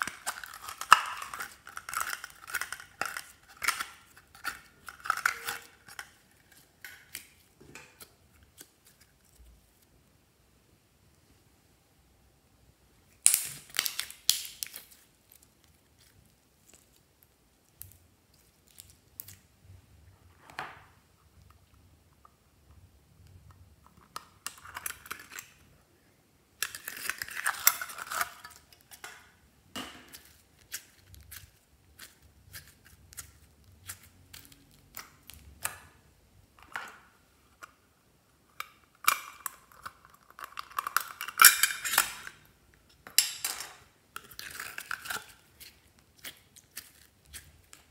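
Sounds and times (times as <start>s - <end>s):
slime crackling and squelching: 0.0s - 9.8s, 13.1s - 19.6s, 30.1s - 35.8s, 44.2s - 47.9s.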